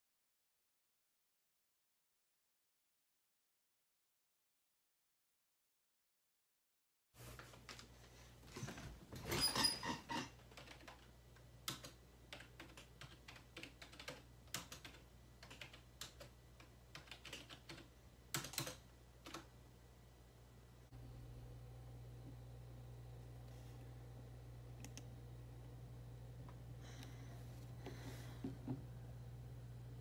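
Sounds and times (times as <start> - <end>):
rustle and creak: 8.5 - 10.5
low steady hum: 10.4 - 30.0.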